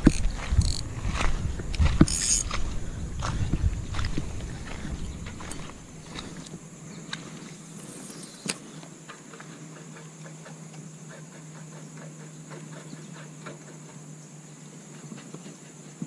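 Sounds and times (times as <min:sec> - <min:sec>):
reel ticking: 0:00.0 - 0:02.6
steady high buzz: 0:00.0 - 0:14.9
fishing reel click: 0:00.1 - 0:00.8, 0:02.0 - 0:02.5.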